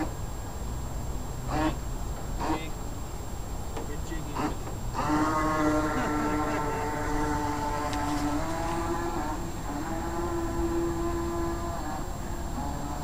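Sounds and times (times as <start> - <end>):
toy boat motor whining: 1.4 - 2.8, 4.0 - 13.0.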